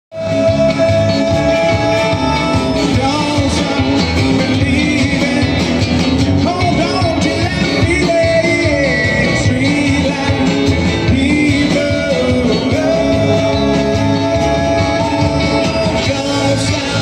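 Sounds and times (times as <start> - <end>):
live country band playing: 0.1 - 17.0.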